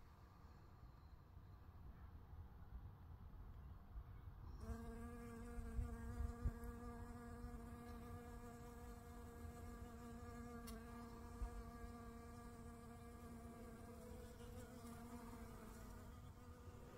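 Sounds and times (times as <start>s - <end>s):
honeybee wings buzzing: 4.6s - 16.9s.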